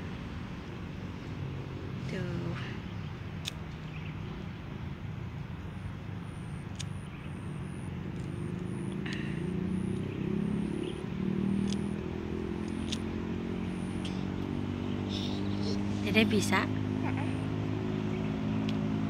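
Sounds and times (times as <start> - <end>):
motor engine droning: 5.6 - 19.0.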